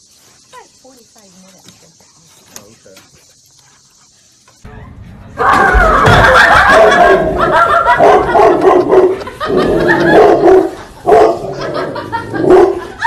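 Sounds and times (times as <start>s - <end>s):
large dog barking: 6.3s - 13.0s.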